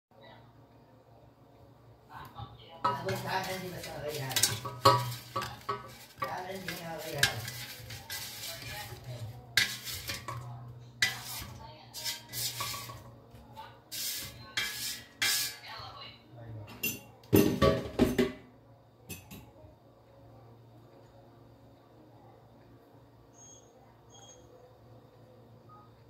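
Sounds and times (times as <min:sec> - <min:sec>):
spatula scraping and knocking basket: 0:02.9 - 0:13.2, 0:13.9 - 0:15.6
potato cubes sliding into a dish: 0:03.1 - 0:13.0.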